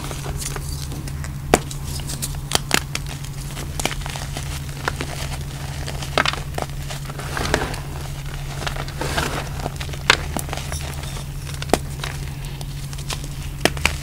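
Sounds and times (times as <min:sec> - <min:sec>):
chalk crunching in hands: 0:01.7 - 0:14.0.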